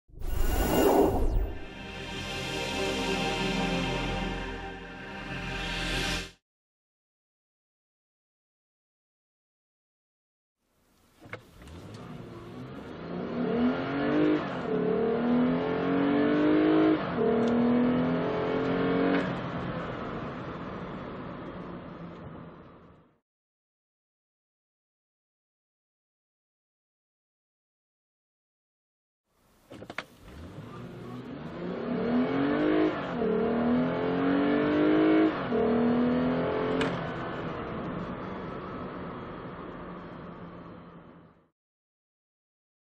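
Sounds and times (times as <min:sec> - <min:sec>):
car engine accelerating: 0:11.6 - 0:22.5, 0:30.2 - 0:41.3.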